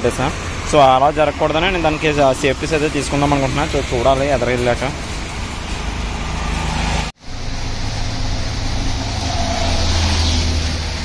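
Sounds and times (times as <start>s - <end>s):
traffic on wet road: 0.0s - 11.0s.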